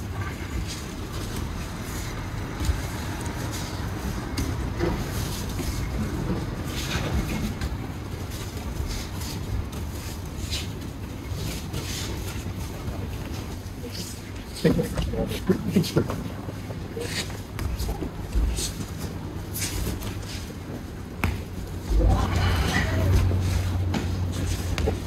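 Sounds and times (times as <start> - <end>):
soft thuds of feet on mat: 16.7 - 25.0
steady low rumble: 20.8 - 25.0.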